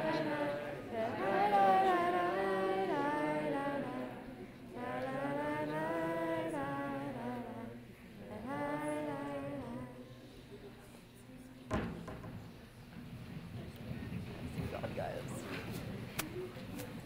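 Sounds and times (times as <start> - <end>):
slow prayer singing: 0.0 - 11.6.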